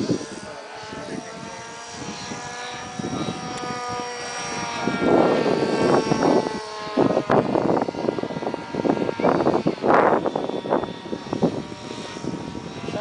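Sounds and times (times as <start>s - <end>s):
model aircraft motor droning: 0.0s - 13.0s.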